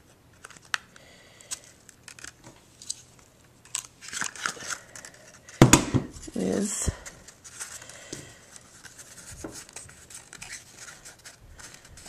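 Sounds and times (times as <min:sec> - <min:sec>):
cardstock rustling: 0:06.3 - 0:12.0.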